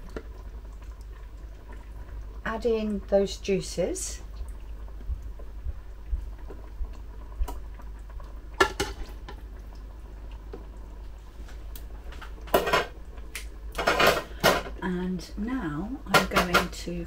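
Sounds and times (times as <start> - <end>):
pot bubbling: 0.0 - 17.0.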